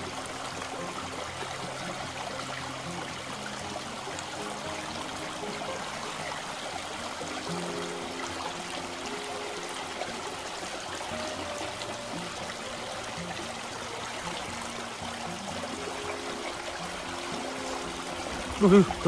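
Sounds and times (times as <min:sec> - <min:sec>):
river water rushing: 0:00.0 - 0:19.0.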